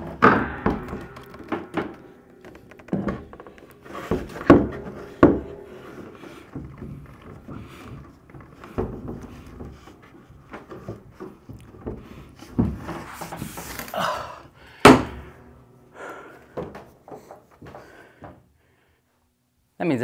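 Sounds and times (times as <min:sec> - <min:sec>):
bed frame thunk: 0:00.0 - 0:14.0, 0:14.8 - 0:15.5
wood knocks and scrapes: 0:00.0 - 0:14.0.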